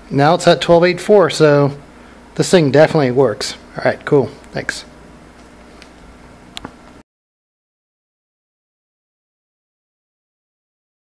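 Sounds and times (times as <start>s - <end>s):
low steady hum and hiss: 0.0s - 7.0s.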